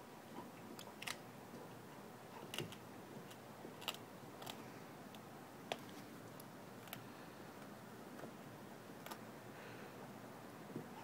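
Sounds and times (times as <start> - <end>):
dog gnawing wooden stick: 2.3 - 4.6.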